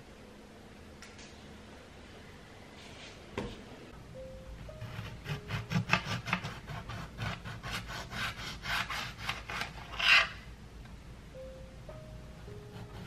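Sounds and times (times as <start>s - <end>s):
knife sawing through lime: 5.2s - 10.4s.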